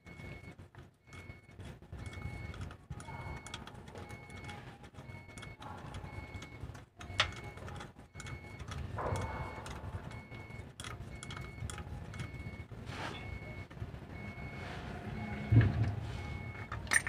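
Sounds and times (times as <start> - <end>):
faint short beeps: 0.0 - 16.8
metal scrape: 12.8 - 13.4, 14.5 - 17.0.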